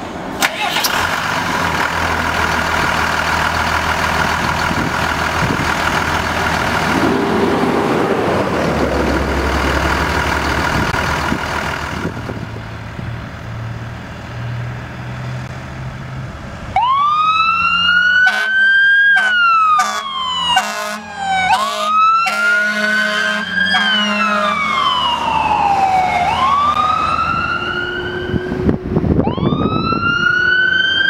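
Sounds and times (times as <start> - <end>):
truck engine idling: 0.4 - 14.1
siren wailing: 16.8 - 31.0.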